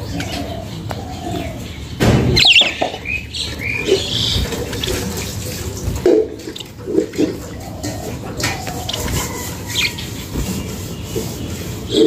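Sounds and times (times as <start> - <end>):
budgerigars chirping: 0.0 - 5.1, 7.4 - 12.0.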